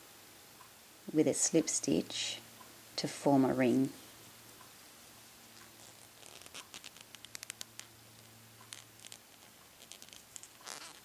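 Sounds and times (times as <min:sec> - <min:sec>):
yarn rustling on crochet hook: 0:05.5 - 0:11.0.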